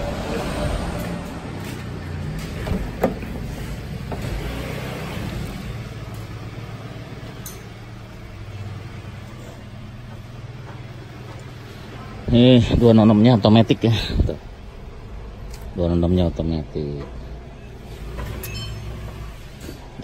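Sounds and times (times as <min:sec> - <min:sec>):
car engine idling: 0:05.4 - 0:15.4.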